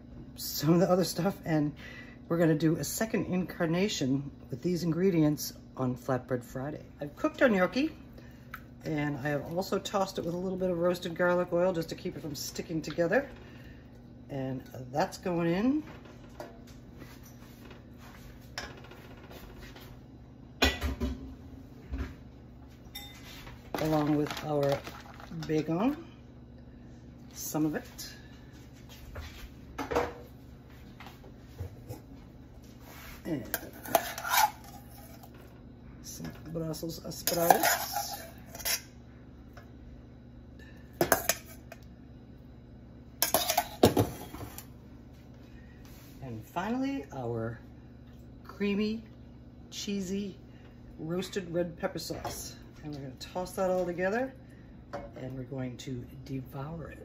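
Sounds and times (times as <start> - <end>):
low steady hum: 0.0 - 57.0
utensils clattering on metal pans: 33.5 - 35.3, 37.2 - 38.8, 43.2 - 44.6.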